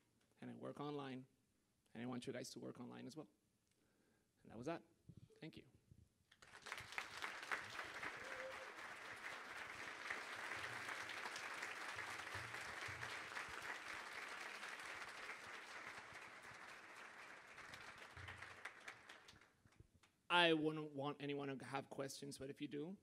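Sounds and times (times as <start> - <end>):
audience applauding: 6.4 - 19.5.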